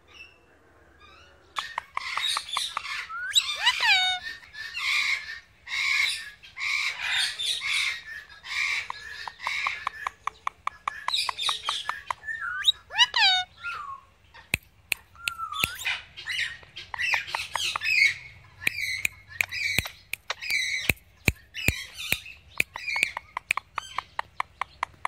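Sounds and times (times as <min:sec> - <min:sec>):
parakeet harsh calls: 0:01.6 - 0:10.0, 0:11.7 - 0:13.8
parakeet sharp clicks: 0:14.5 - 0:15.9, 0:16.6 - 0:25.0.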